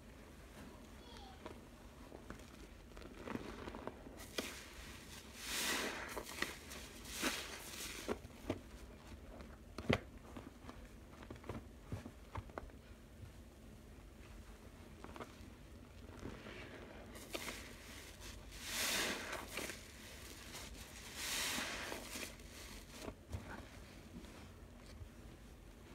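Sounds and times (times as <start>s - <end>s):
sponge squelching in water: 2.4s - 8.4s, 14.9s - 24.1s.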